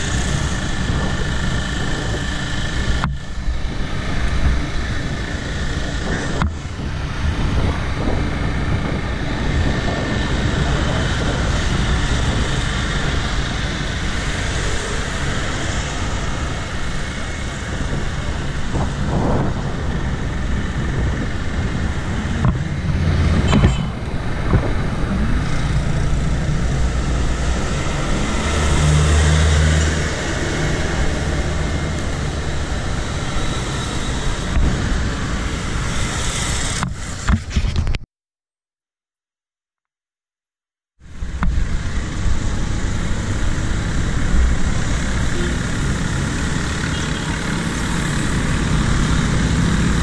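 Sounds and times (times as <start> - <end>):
low engine drone: 0.0 - 36.2
road traffic passing: 0.0 - 37.4, 41.0 - 50.0
wind rumble on microphone: 0.0 - 38.0.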